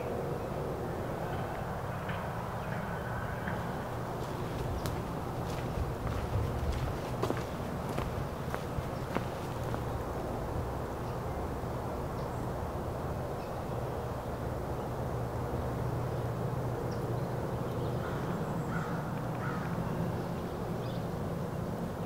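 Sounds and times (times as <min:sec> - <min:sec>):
crows cawing: 0:18.0 - 0:19.8.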